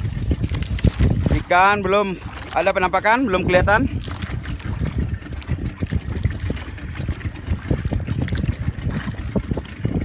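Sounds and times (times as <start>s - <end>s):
waves slapping against boat hull: 0.0s - 10.0s
wind buffeting microphone: 0.0s - 10.0s.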